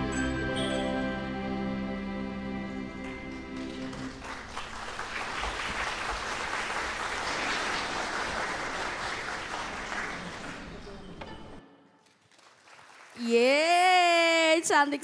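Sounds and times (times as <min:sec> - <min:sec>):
audience applauding: 0:03.0 - 0:13.7.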